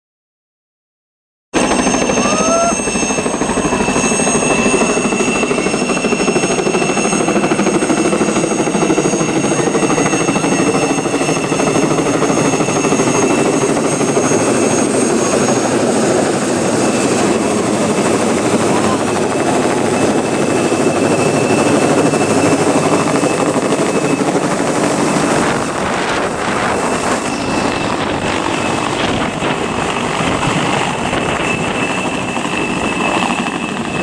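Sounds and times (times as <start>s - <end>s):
helicopter rotor beat: 1.6s - 34.0s
turbine whine: 1.6s - 34.0s.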